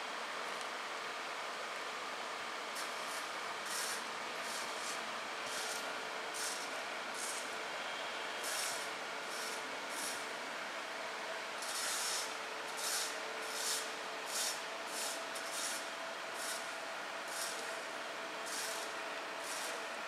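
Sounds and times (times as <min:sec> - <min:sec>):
steady rushing hiss: 0:02.7 - 0:07.5, 0:11.6 - 0:17.6
short bursts of sharper hiss: 0:02.8 - 0:05.8, 0:06.4 - 0:07.4, 0:08.4 - 0:10.2, 0:11.6 - 0:15.8, 0:16.4 - 0:16.7.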